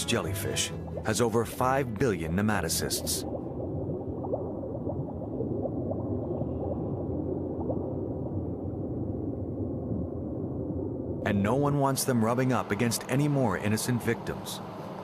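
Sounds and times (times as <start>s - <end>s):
bubbling blips: 0.0s - 11.2s
underwater low rumble: 0.0s - 11.4s.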